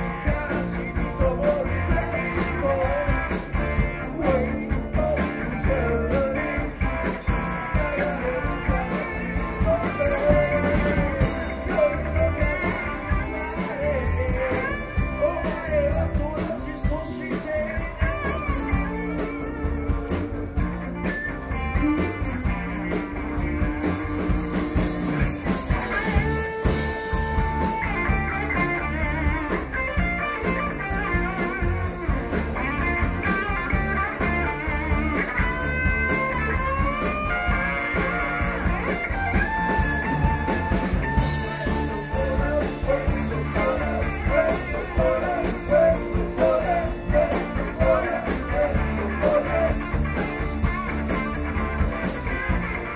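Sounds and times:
person singing: 0:00.0 - 0:06.8, 0:07.6 - 0:20.8, 0:39.7 - 0:50.4
bass guitar: 0:00.0 - 0:52.9
drums: 0:00.0 - 0:52.9
electric lead guitar: 0:00.0 - 0:52.9.

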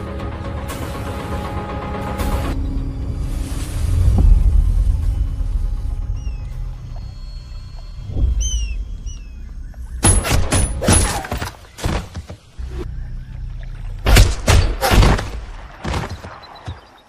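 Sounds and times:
low rumble: 0:02.5 - 0:10.0.

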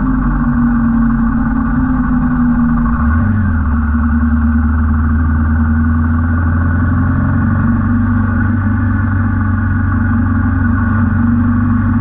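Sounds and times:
motorcycle engine droning: 0:00.0 - 0:12.0.

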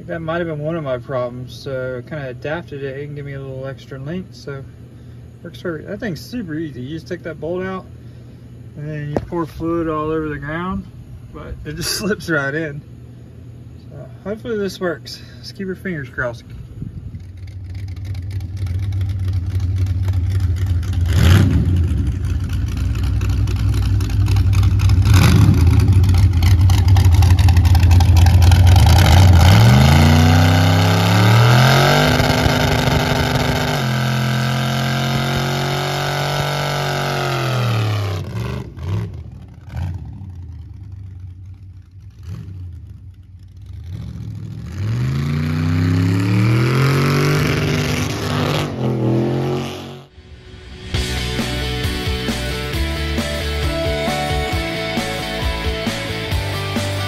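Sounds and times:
engine revving during burnout: 0:17.8 - 0:40.8, 0:42.0 - 0:52.4.

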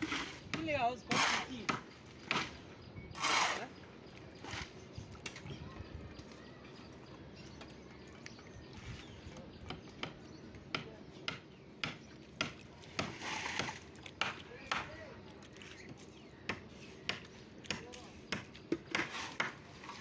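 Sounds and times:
sharp knocks on wooden shuttering: 0:09.6 - 0:15.0.

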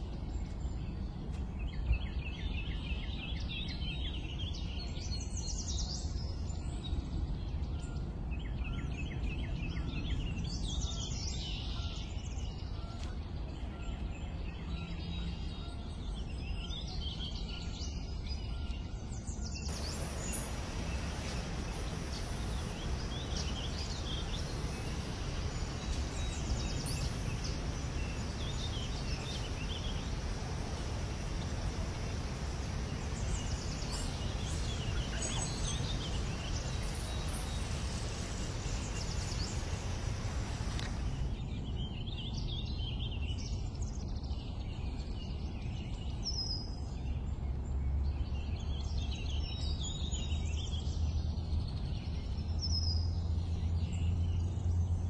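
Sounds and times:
songbirds calling: 0:00.0 - 0:55.0
bright hiss: 0:19.7 - 0:41.4
steady low rumble: 0:19.7 - 0:42.4.

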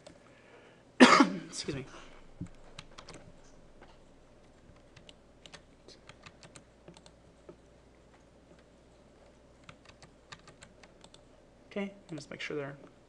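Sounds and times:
computer keys clicking: 0:02.4 - 0:03.6, 0:04.4 - 0:07.2, 0:09.3 - 0:11.3, 0:12.0 - 0:12.4.

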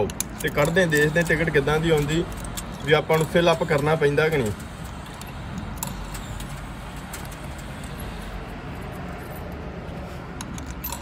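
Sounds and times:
coins clicking into coin slot: 0:00.0 - 0:08.2, 0:10.4 - 0:11.0.

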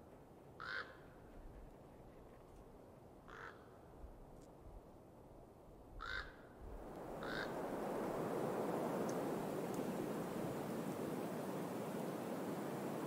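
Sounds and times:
crow cawing: 0:00.6 - 0:01.0, 0:03.3 - 0:03.7, 0:06.0 - 0:06.4, 0:07.2 - 0:07.6
steady hiss: 0:06.7 - 0:13.0.

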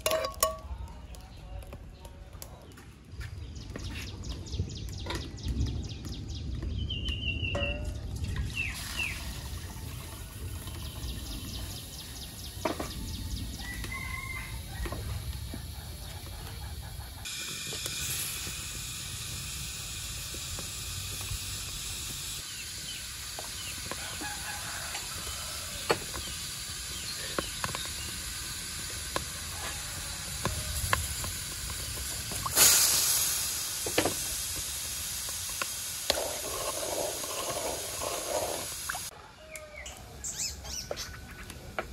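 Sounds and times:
pot hissing: 0:07.6 - 0:39.1.

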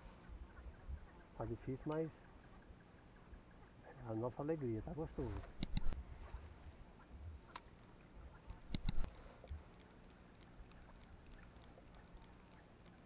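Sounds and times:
faint light ticks: 0:01.8 - 0:02.9, 0:05.4 - 0:06.0, 0:07.4 - 0:13.0.

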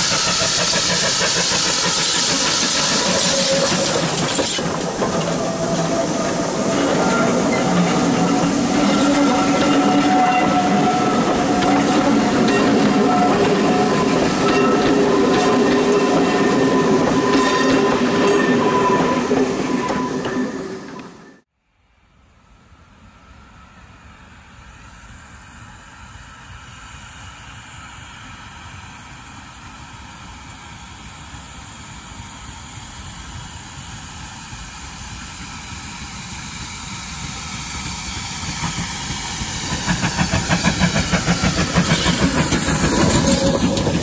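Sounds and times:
steam hiss: 0:00.0 - 0:19.6, 0:30.9 - 0:44.0
steam locomotive chuffing: 0:00.0 - 0:21.1, 0:29.4 - 0:44.0.

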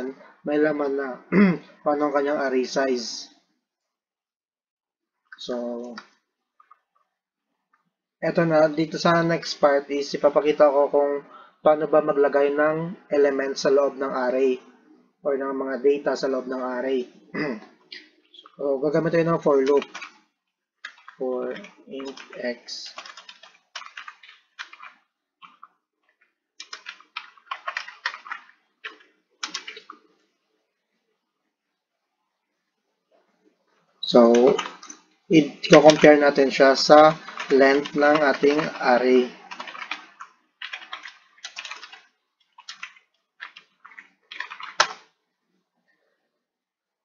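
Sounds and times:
computer keyboard typing: 0:18.0 - 0:30.1, 0:34.0 - 0:45.1.

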